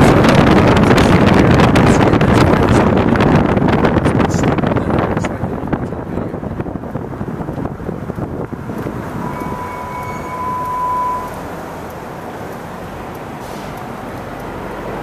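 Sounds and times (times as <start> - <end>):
car road noise: 0.0 - 15.0
wind buffeting microphone: 0.0 - 15.0
steady high whine: 6.9 - 15.0.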